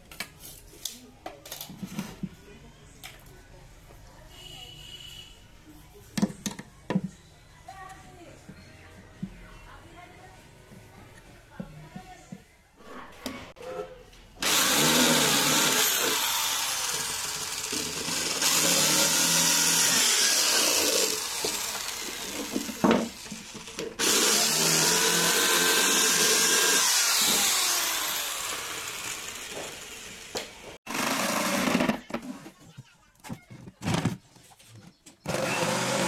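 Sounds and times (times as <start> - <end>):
electric drill boring into wood: 14.4 - 31.9, 35.3 - 36.0.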